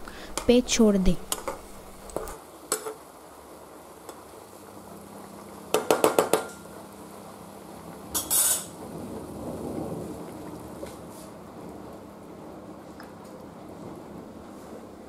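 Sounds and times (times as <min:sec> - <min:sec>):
metal scrape: 0:08.2 - 0:08.7.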